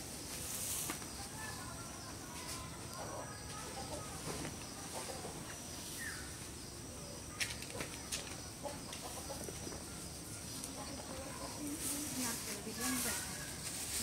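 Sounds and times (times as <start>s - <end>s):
poultry clucking: 0.9s - 12.0s
straw rustling: 7.3s - 14.0s.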